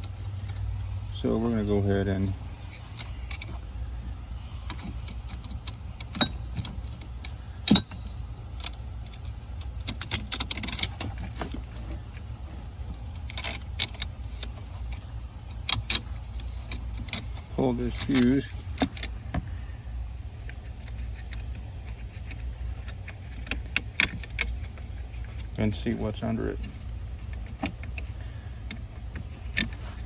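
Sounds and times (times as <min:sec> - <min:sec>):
low hum: 0:00.0 - 0:30.0
metallic clicks and rattles: 0:04.6 - 0:12.3, 0:12.9 - 0:19.4, 0:20.4 - 0:30.0.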